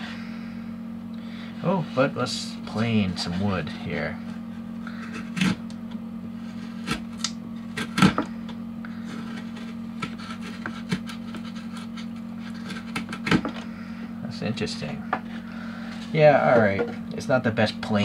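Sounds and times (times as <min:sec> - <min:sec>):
steady low hum: 0:00.0 - 0:18.0
knife scraping wood: 0:04.4 - 0:05.7, 0:06.4 - 0:08.3, 0:08.9 - 0:13.6.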